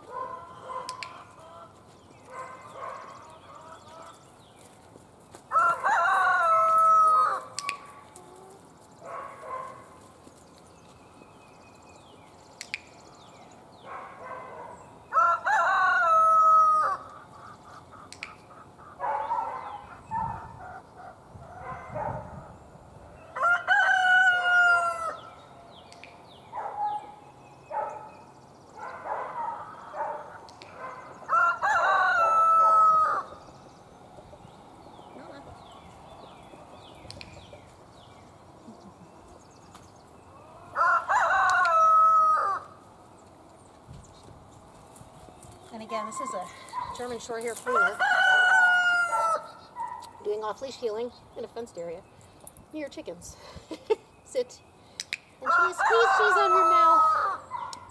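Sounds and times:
chickens clucking: 0.4s - 4.2s, 17.0s - 21.1s, 34.0s - 39.4s
rooster crowing: 5.5s - 7.5s, 15.1s - 17.1s, 23.4s - 25.3s, 31.2s - 33.4s, 40.4s - 42.8s, 47.7s - 49.6s, 55.4s - 57.9s.

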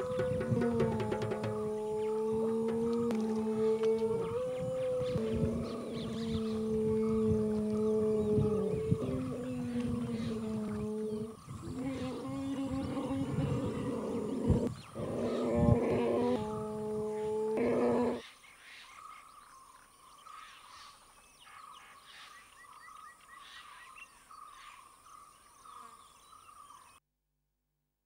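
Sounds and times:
elephants calling: 0.0s - 18.2s
open-country ambience: 0.0s - 27.0s.

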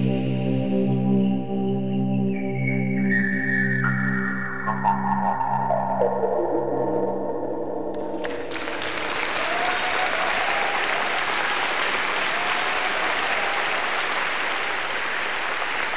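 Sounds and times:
music: 0.0s - 9.7s
audience applauding: 8.0s - 15.9s.

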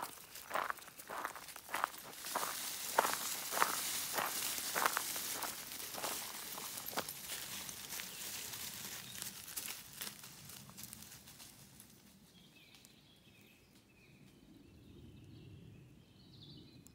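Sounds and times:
small birds chirping: 0.0s - 9.5s
footsteps crunching on gravel: 0.0s - 11.4s.

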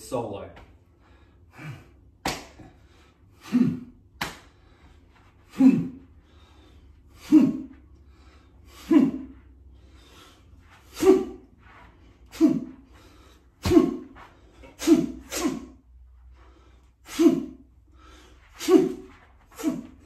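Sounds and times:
man's forceful exhalations: 12.2s - 15.9s, 16.5s - 20.0s.

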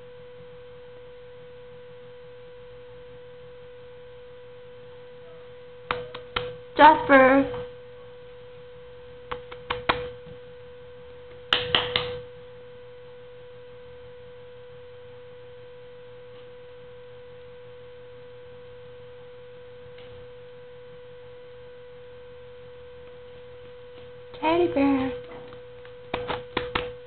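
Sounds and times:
steady pitched hum: 0.0s - 27.0s
sharp clicks and knocks: 25.3s - 27.0s.

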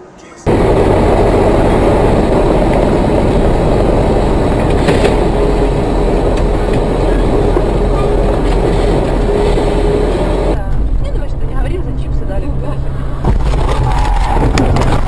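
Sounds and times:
road and engine rumble in car: 0.5s - 15.0s.

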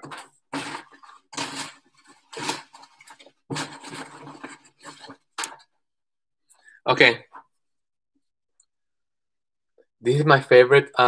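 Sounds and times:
rustling and scraping in trash bag: 0.0s - 5.4s.

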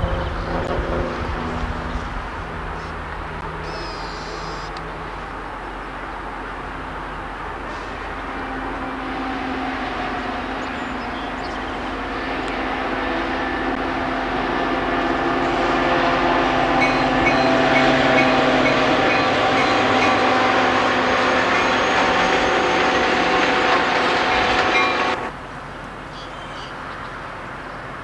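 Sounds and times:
locomotive engine drone: 0.0s - 25.8s
passenger cars rolling by: 4.8s - 25.6s.

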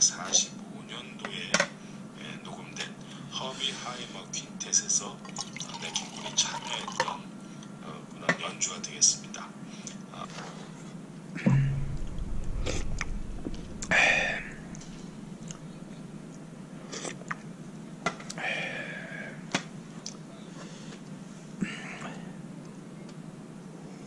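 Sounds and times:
low hum: 11.5s - 17.9s.

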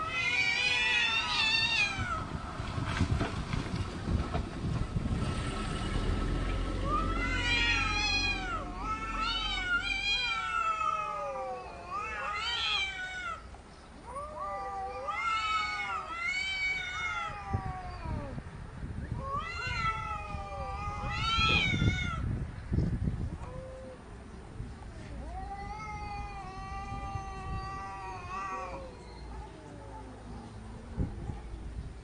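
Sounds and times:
cats yowling: 0.0s - 2.3s, 6.8s - 18.4s, 19.2s - 22.3s, 24.8s - 30.3s.

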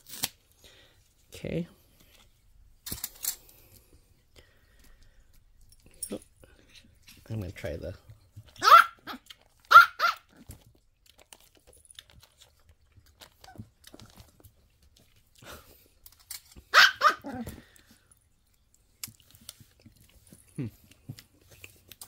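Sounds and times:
dog barking: 8.6s - 10.3s, 16.7s - 17.4s.

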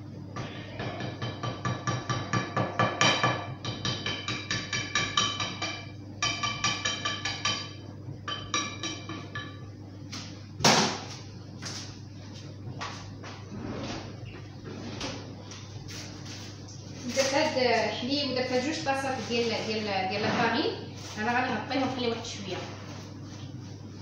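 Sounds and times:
wire whisk knocking ceramic bowl: 0.8s - 9.6s.

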